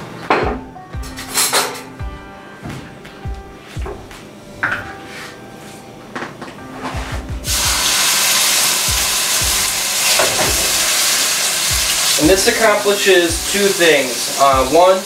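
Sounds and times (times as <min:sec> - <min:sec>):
meat sizzling in hot oil: 0:07.4 - 0:15.0.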